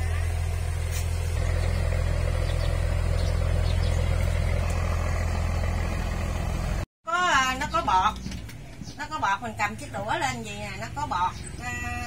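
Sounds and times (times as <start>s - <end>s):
low machine hum: 0.0s - 6.8s.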